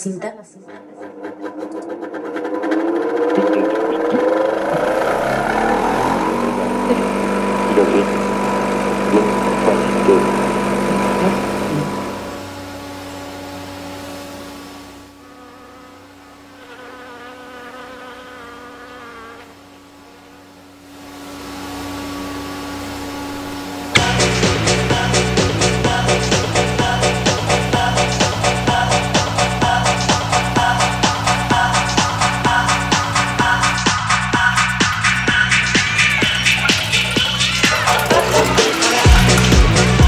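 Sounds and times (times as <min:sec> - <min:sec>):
tape rewinding whine: 0:00.8 - 0:14.4, 0:30.0 - 0:40.0.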